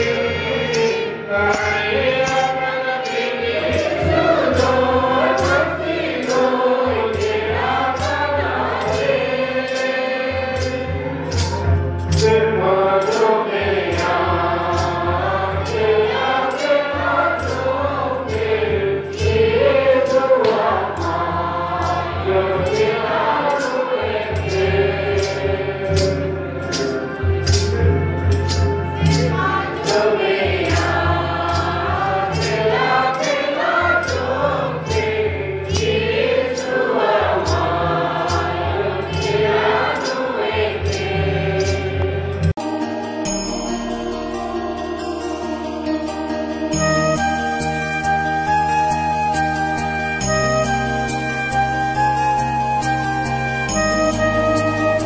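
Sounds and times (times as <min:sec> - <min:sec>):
congregation singing a hymn: 0:00.0 - 0:43.3
steady percussion beat: 0:00.0 - 0:55.0.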